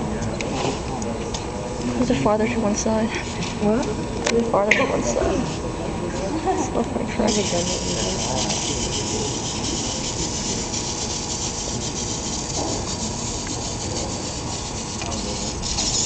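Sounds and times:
small robot motors hissing: 0:07.2 - 0:16.0.

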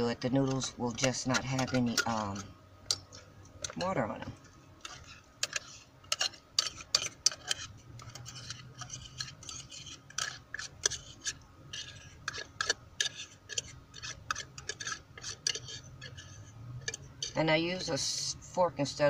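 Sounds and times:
fork scraping tin can: 0:00.0 - 0:02.5, 0:04.8 - 0:17.4.

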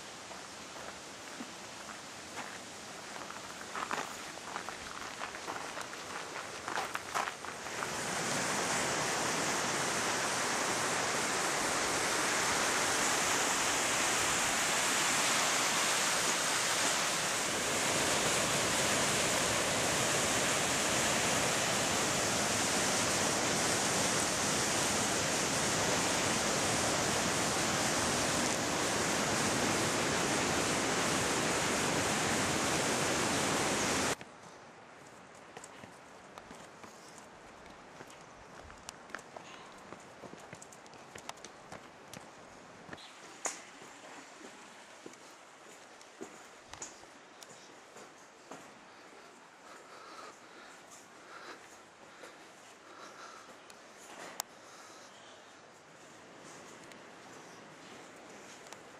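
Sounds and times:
waterfall roaring: 0:07.6 - 0:34.2.

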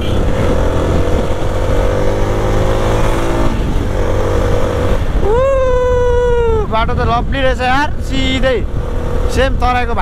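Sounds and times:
motorcycle engine running: 0:00.0 - 0:05.3.

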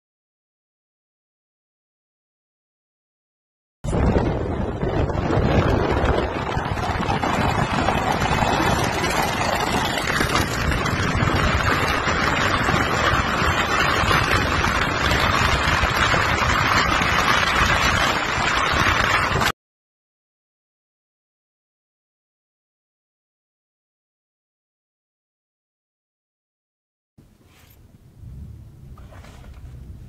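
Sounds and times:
wind on microphone: 0:03.8 - 0:19.5, 0:27.2 - 0:30.0
car road noise at speed: 0:03.9 - 0:19.5, 0:27.2 - 0:30.0.

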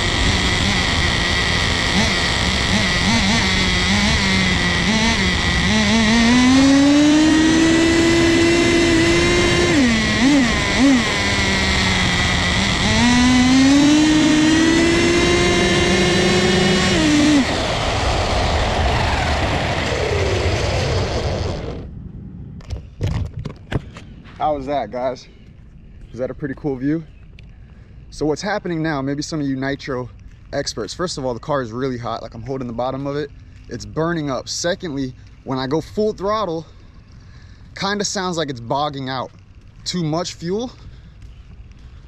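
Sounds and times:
small model car engine revving: 0:00.0 - 0:21.9.

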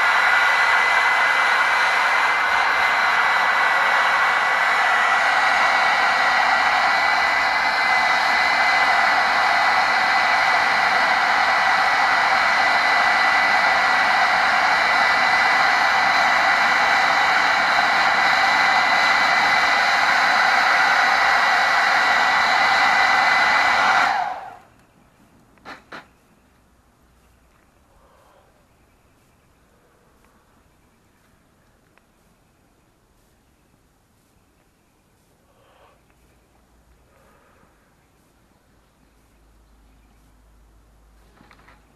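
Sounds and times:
hairdryer blowing with whine: 0:00.0 - 0:24.7.

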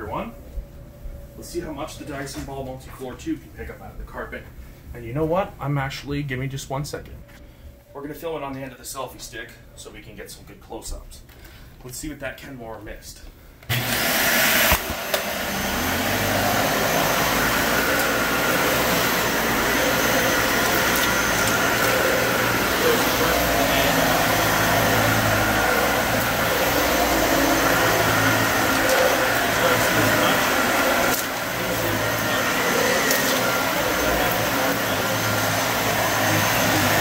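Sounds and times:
vacuum cleaner running on carpet: 0:13.7 - 0:37.0.

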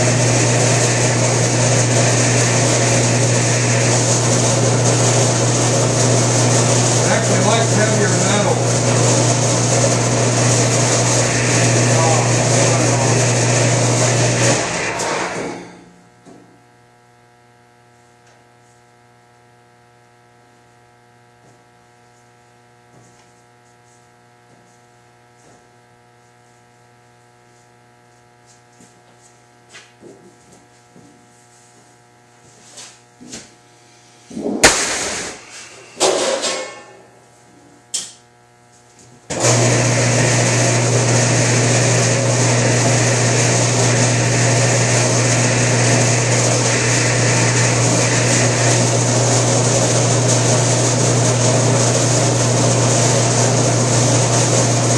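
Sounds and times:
machine motor running loudly: 0:00.0 - 0:16.4, 0:39.3 - 0:54.9
sheet metal clattering: 0:34.5 - 0:37.0.

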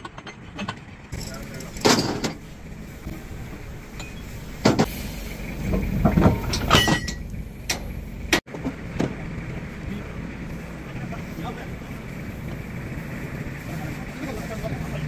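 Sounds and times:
heavy steel clanks: 0:00.0 - 0:08.4
steady low rumble: 0:00.9 - 0:15.0
ringing metal clang: 0:06.2 - 0:07.9.

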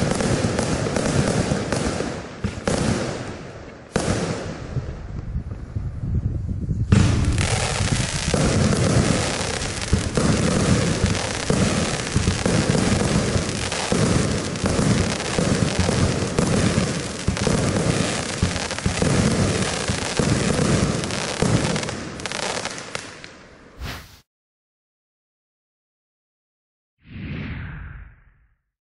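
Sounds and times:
firework aerial bursts: 0:00.0 - 0:23.1, 0:23.8 - 0:24.3
firework launch thumps: 0:23.8 - 0:24.2.

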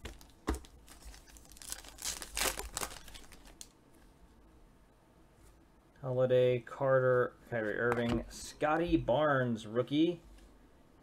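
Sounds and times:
wrapper crinkling and tearing: 0:00.2 - 0:03.7.

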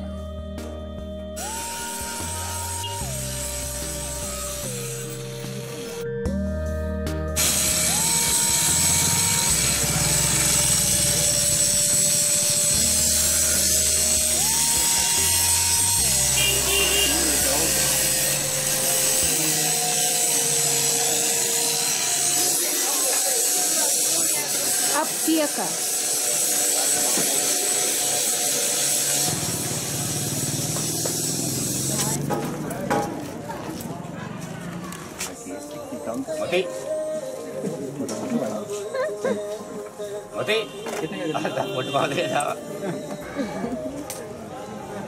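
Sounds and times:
street noise: 0:00.0 - 0:06.4, 0:07.0 - 0:45.0
low bass notes: 0:02.2 - 0:19.6
small engine buzzing: 0:07.4 - 0:32.3.

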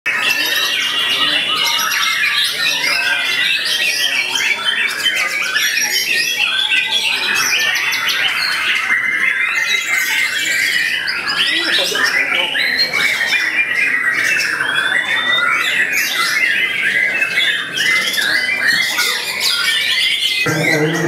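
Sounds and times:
other songbirds singing: 0:00.1 - 0:21.0
songbird singing loudly: 0:09.4 - 0:21.0.

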